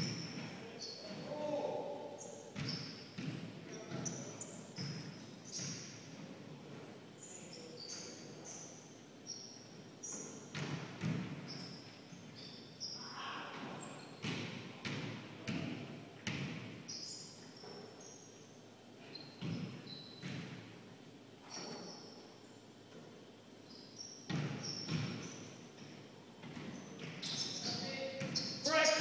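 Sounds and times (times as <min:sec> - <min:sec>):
sneakers squeaking on floor: 0:00.0 - 0:01.6, 0:02.2 - 0:18.4, 0:19.0 - 0:20.8, 0:21.4 - 0:23.1, 0:23.7 - 0:29.0
basketball bouncing on hardwood floor: 0:02.6 - 0:04.2, 0:10.5 - 0:11.5, 0:14.2 - 0:16.7, 0:24.3 - 0:27.3, 0:28.2 - 0:28.4.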